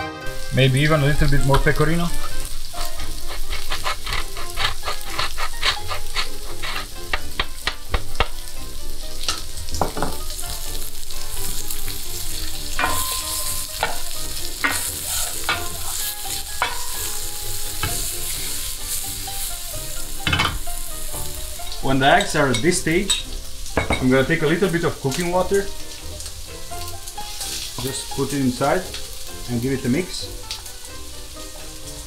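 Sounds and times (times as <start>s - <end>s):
meat sizzling in frying pan: 0.2s - 32.0s
fork beating eggs in glass bowl: 3.0s - 7.3s.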